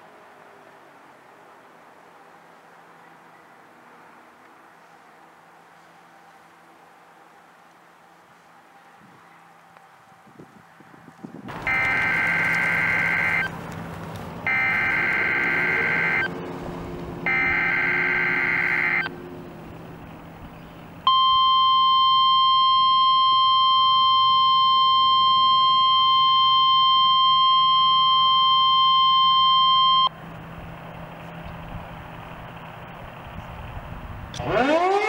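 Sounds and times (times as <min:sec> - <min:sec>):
steady high warning tone: 0:11.5 - 0:13.5, 0:14.5 - 0:30.2.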